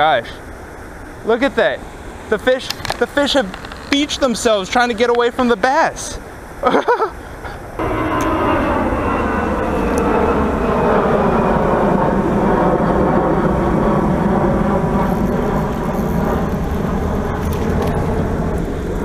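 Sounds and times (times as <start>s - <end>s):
jet airliner passing overhead: 7.2s - 19.0s.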